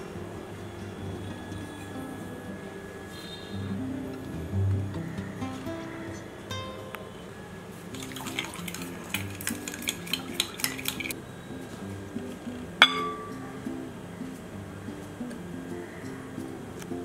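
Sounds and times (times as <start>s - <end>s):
utensil clinking in glass bowl: 8.0s - 11.2s, 12.8s - 13.6s
glass bowls clinking together: 12.8s - 13.6s.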